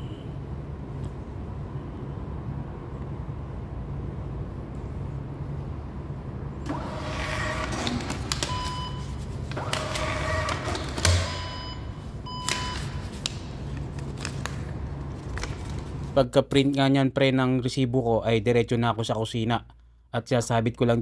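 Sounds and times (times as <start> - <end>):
receipt printer motor buzzing: 6.7 - 8.6, 9.5 - 11.5.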